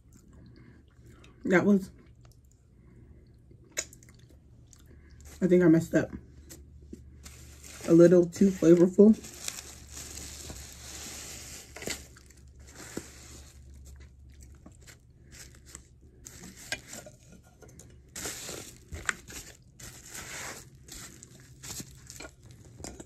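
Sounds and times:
crunching and chewing: 0:02.0 - 0:05.4, 0:09.2 - 0:23.0.

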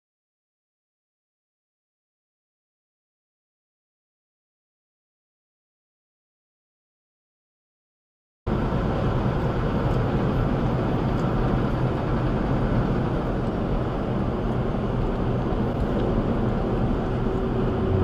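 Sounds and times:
truck engine and tyres at speed: 0:08.5 - 0:18.0.

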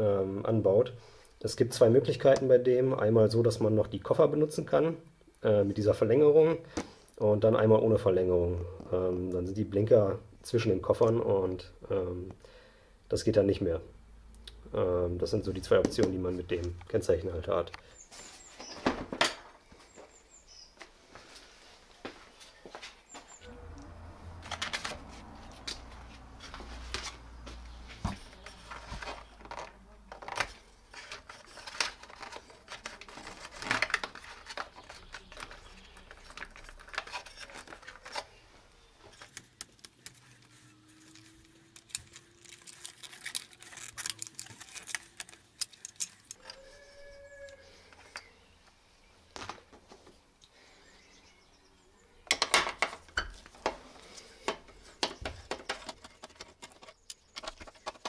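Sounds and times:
plastic connectors clicking: 0:41.1 - 0:46.6.

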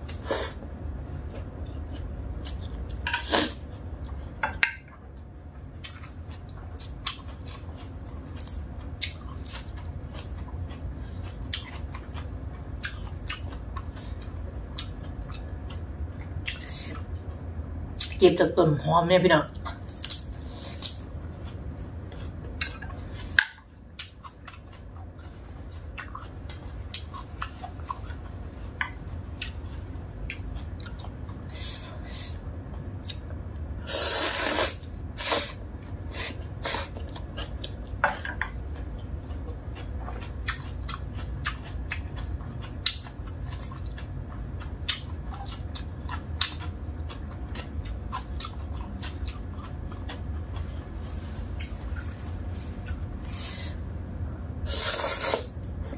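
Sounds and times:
chewing noodles: 0:05.8 - 0:17.1, 0:24.0 - 0:31.6, 0:36.0 - 0:50.9.

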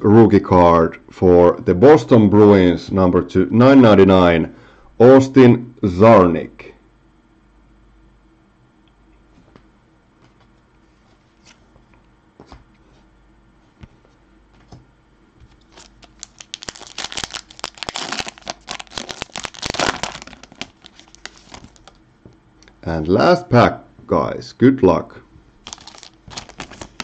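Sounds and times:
foil wrapper crinkling and tearing: 0:15.6 - 0:22.0, 0:25.6 - 0:27.0.

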